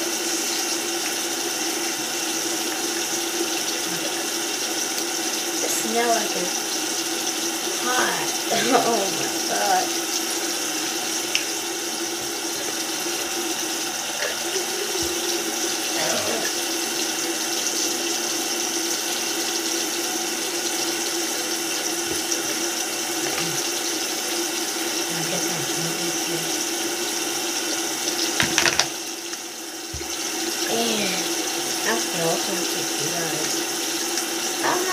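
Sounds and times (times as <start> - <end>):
tap running into sink: 20.7 - 24.0, 28.0 - 30.7.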